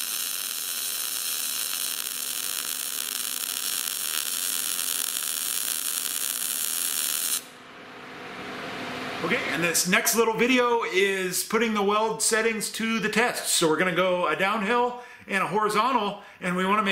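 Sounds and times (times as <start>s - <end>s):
welding arc buzzing: 0.0s - 7.6s.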